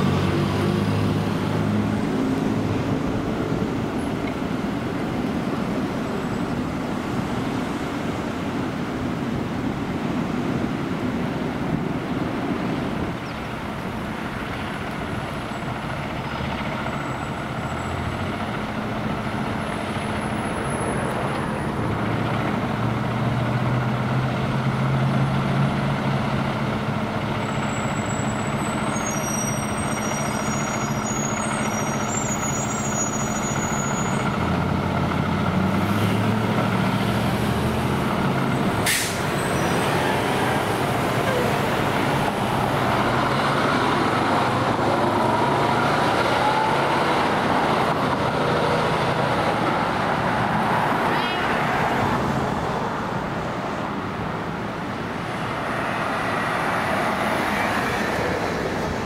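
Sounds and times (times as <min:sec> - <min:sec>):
fire engine diesel engine running: 0:00.0 - 0:59.0
short high squeaks: 0:27.6 - 0:34.2.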